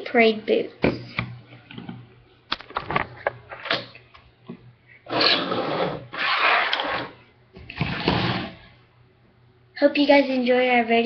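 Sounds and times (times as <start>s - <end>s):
things scraping on a table: 5.1s - 7.2s, 7.8s - 8.7s.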